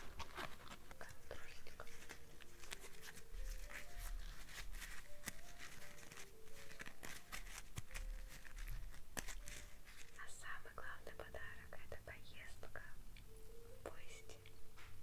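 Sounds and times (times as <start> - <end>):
artificial flower crinkling: 0.0 - 10.4
soft slow background music: 0.0 - 15.0.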